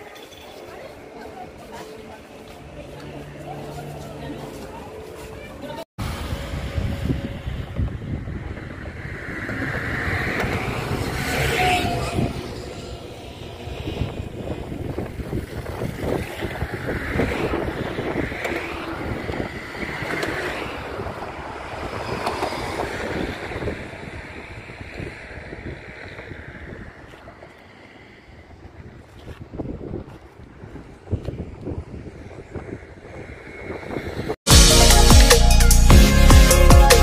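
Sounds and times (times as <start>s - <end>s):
vehicle road and engine noise: 0.0s - 34.4s
wind rushing over microphone: 6.0s - 34.4s.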